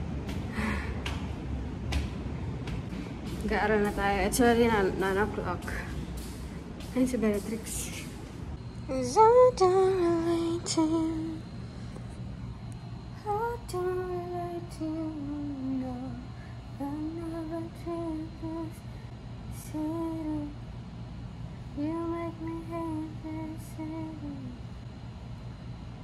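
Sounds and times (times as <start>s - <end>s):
woman singing unaccompanied: 3.4s - 6.0s, 8.8s - 11.6s, 13.1s - 18.9s, 19.5s - 20.8s, 21.8s - 24.8s.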